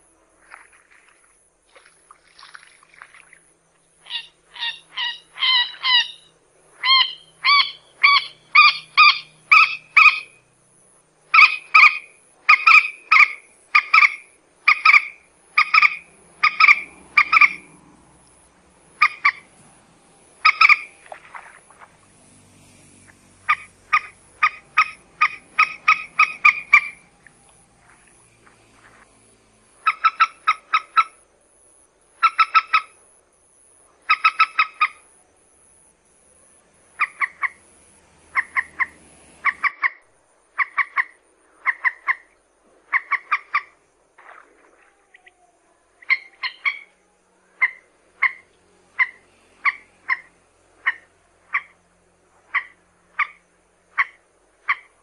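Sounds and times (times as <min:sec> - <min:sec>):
moorhen clucking calls: 0:04.0 - 0:10.4, 0:11.3 - 0:17.9, 0:18.9 - 0:19.7, 0:20.4 - 0:21.9, 0:23.2 - 0:29.1, 0:29.8 - 0:31.2, 0:32.2 - 0:33.0, 0:34.0 - 0:35.0, 0:36.9 - 0:37.7, 0:38.3 - 0:45.3, 0:46.0 - 0:46.9, 0:47.5 - 0:51.8, 0:52.4 - 0:55.0.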